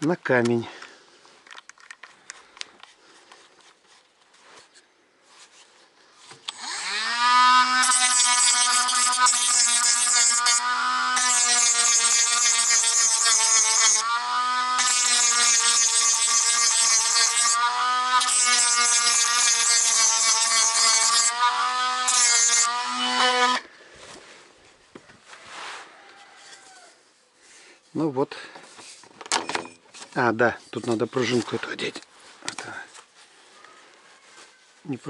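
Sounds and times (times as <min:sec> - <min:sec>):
electric grinder whining: 0:06.5 - 0:23.7
grinding stone cutting pipe: 0:06.5 - 0:23.7.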